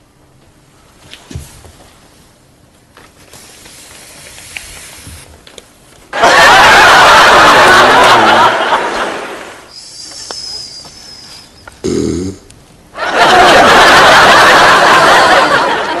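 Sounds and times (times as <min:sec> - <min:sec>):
sitcom audience laughter: 0:06.1 - 0:10.6, 0:13.0 - 0:16.0.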